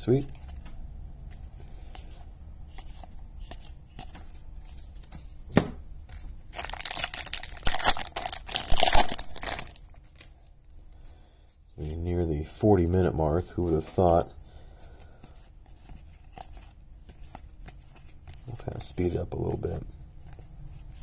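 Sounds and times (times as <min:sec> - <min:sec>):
foil wrapper tearing and crinkling: 0:06.6 - 0:09.8.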